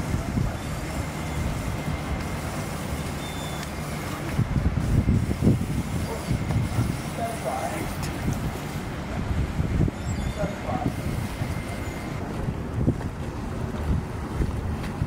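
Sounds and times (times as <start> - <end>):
large engine rumbling: 0.0 - 15.0.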